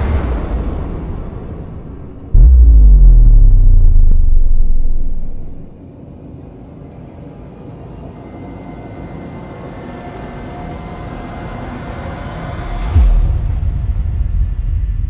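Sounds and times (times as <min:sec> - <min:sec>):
deep boom: 0:02.4 - 0:05.7
low rumbling drone: 0:02.4 - 0:05.8.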